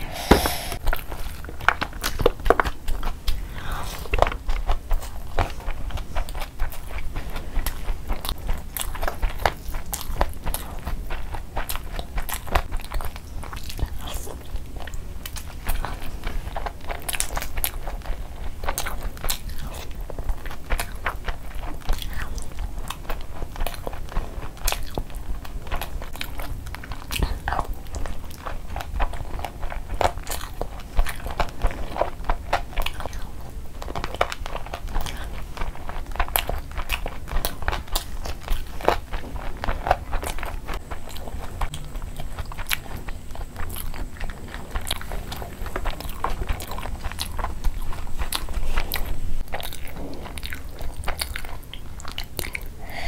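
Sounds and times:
person chewing food: 0:00.0 - 0:53.0.

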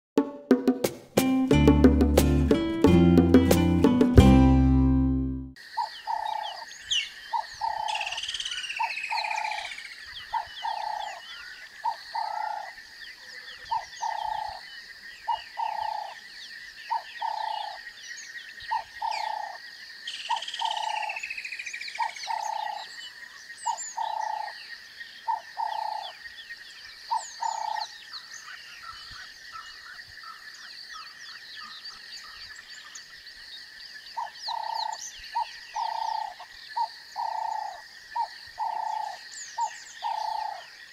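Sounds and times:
frogs calling: 0:05.6 - 0:40.9
bird chirps: 0:05.8 - 0:12.6, 0:20.1 - 0:24.6, 0:34.1 - 0:40.7.

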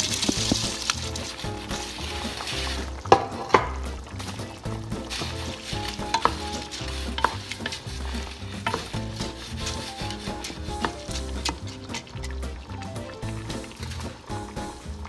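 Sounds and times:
spoon stirring rice in a pot: 0:00.0 - 0:14.3
background music with steady beat: 0:00.0 - 0:15.0
sizzling hiss: 0:00.0 - 0:15.0
spoon knocking against pot: 0:03.1 - 0:03.8, 0:07.1 - 0:07.8.

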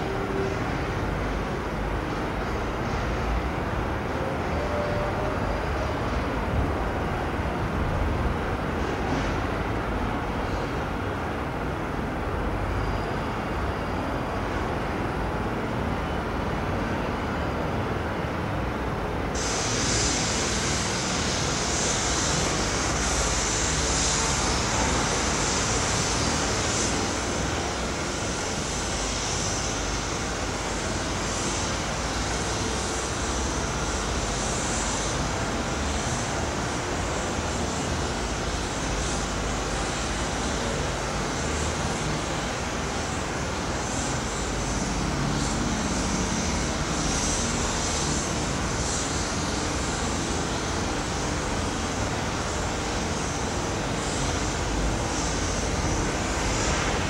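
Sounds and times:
steady high hiss: 0:00.0 - 0:57.0
trains rumbling over tracks: 0:00.0 - 0:57.0.

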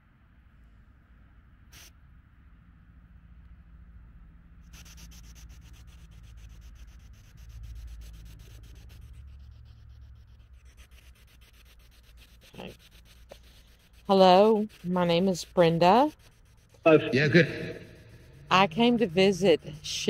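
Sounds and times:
low rumble: 0:16.9 - 0:18.9.

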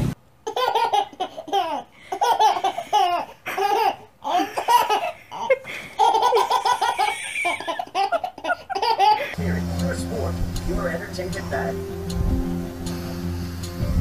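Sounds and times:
baby laughing: 0:00.4 - 0:09.4.

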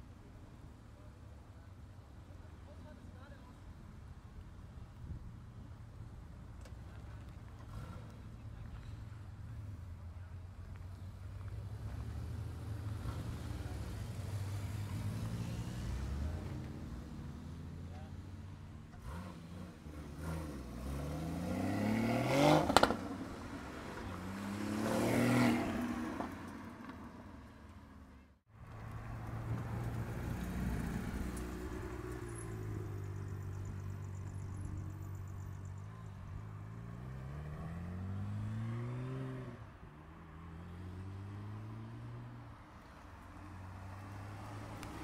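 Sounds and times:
sports car accelerating: 0:10.6 - 0:28.0, 0:28.7 - 0:45.0.

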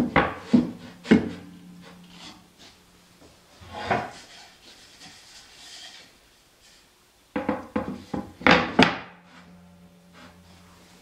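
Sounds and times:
wooden panels sliding and knocking: 0:03.6 - 0:06.9.

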